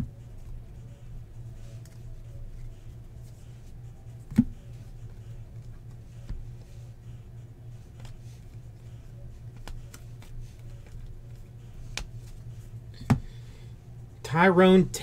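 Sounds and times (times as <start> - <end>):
steady low hum: 0.0 - 15.0
cards clicking and sliding: 7.8 - 12.5.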